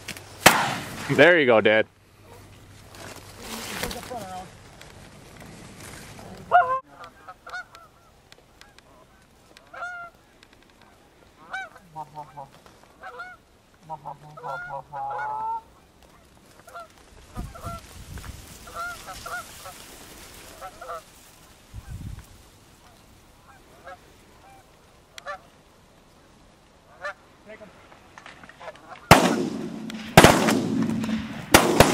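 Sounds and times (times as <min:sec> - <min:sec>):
geese honking: 0:06.5 - 0:17.8, 0:18.6 - 0:21.1, 0:22.8 - 0:25.6, 0:26.8 - 0:27.3
low rumbles: 0:29.1 - 0:31.9.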